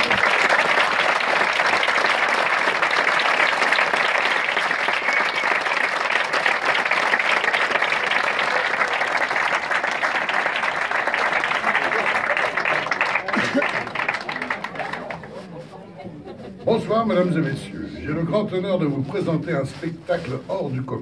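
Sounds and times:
audience applauding: 0.0s - 15.7s.

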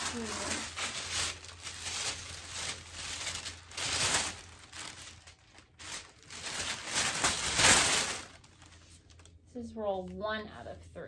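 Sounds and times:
wallpaper wrapping rustling: 0.0s - 10.3s.

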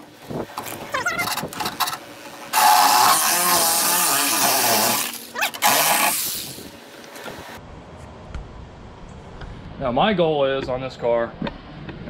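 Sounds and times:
reciprocating saw cutting sheet metal: 1.8s - 6.6s.

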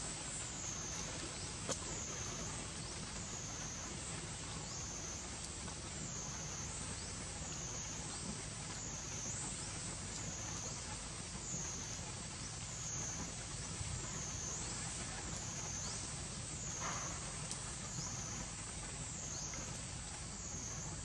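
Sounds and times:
high insect drone: 6.0s - 21.0s.

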